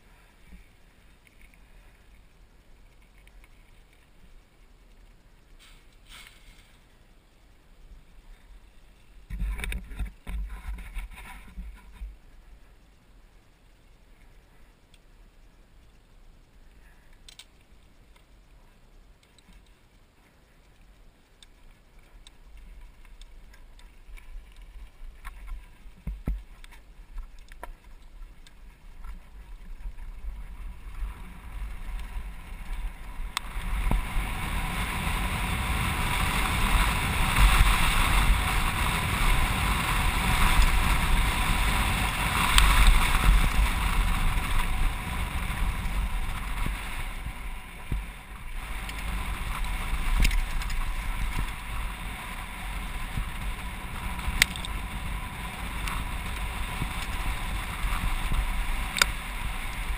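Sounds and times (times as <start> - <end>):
bike tyres on gravel: 0.0 - 59.9
wind rushing over camera: 0.0 - 59.9
bike clicks and knocks: 9.3 - 12.2, 17.1 - 18.4, 47.8 - 51.9, 52.8 - 55.0, 55.7 - 59.9.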